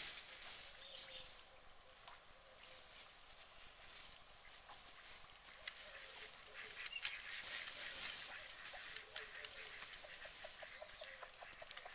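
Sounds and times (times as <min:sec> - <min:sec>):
steady hiss: 0:00.0 - 0:11.5
ducks calling softly: 0:04.3 - 0:11.9.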